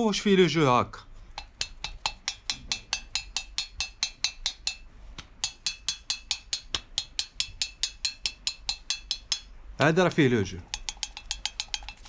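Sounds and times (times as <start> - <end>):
piston clicking in cylinder: 1.4 - 9.5, 10.7 - 12.0.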